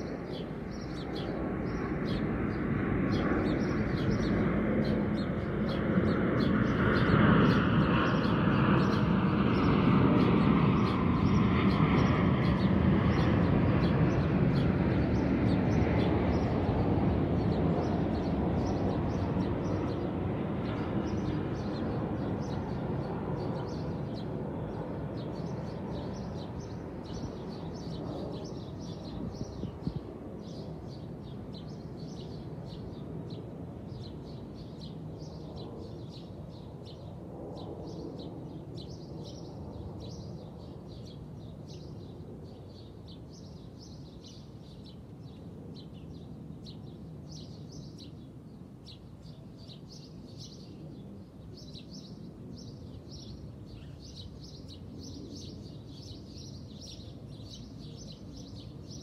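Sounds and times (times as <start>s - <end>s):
airplane rumble and whine: 0.0s - 42.8s
small birds chirping: 0.0s - 59.0s.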